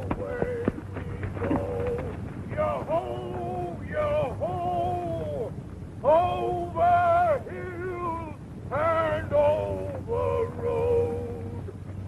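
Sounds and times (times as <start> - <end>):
steady low hum: 0.0 - 12.0
man singing slow song: 2.6 - 11.7.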